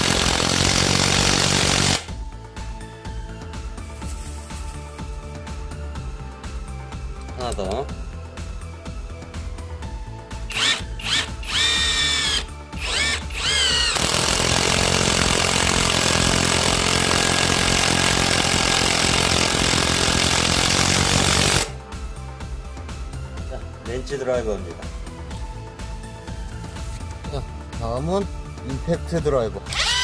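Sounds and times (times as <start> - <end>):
impact wrench motor whining: 0.0 - 2.1, 10.5 - 21.8, 29.7 - 30.0
rapid impact hammering: 0.0 - 2.1, 10.6 - 21.7.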